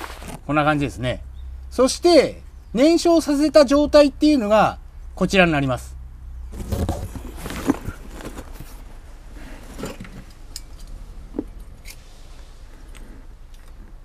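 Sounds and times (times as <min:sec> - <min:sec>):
cardboard box rustling: 0:06.5 - 0:10.0.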